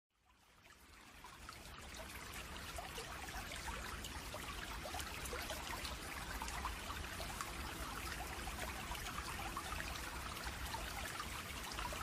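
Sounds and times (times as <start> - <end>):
water trickling and splashing: 0.1 - 12.0.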